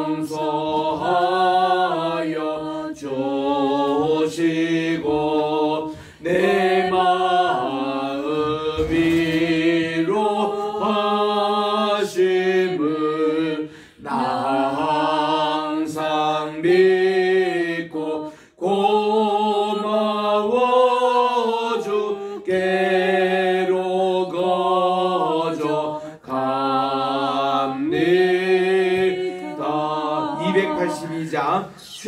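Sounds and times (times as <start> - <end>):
man singing unaccompanied hymn: 22.4 - 32.0.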